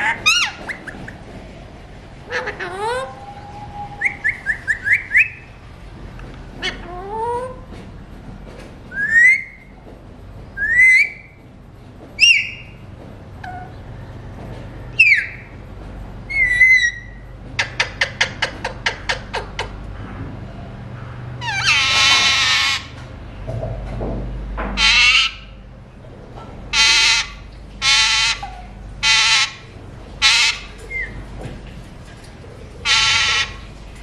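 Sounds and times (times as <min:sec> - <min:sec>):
parakeets whistled calls: 0:02.3 - 0:05.5, 0:09.0 - 0:09.6, 0:10.6 - 0:11.3, 0:12.2 - 0:12.7, 0:15.0 - 0:15.4, 0:16.3 - 0:17.2, 0:21.4 - 0:22.9, 0:24.8 - 0:25.4, 0:26.7 - 0:29.6, 0:30.2 - 0:31.2, 0:32.9 - 0:33.6.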